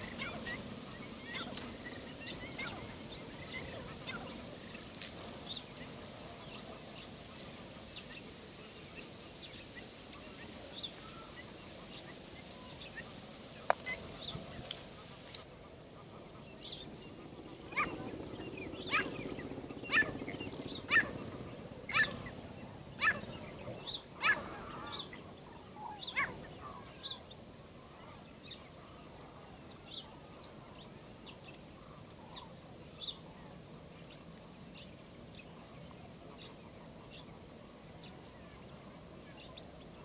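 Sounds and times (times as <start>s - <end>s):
bird calling: 0.0s - 6.8s, 17.7s - 18.1s, 18.8s - 22.4s, 23.0s - 27.2s.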